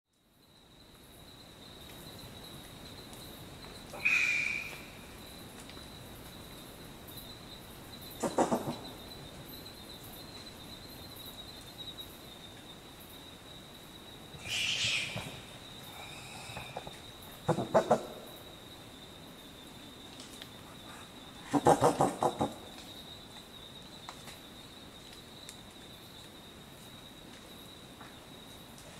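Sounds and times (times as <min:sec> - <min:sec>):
possum wheezy shriek: 0:04.0 - 0:04.8, 0:14.4 - 0:15.4.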